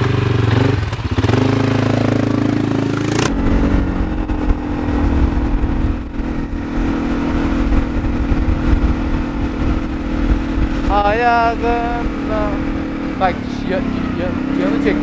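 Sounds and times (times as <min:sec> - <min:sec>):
atv engine idling: 0:00.0 - 0:06.7, 0:08.1 - 0:15.0
atv engine pulling: 0:00.0 - 0:15.0
wind rumble on microphone: 0:03.3 - 0:15.0.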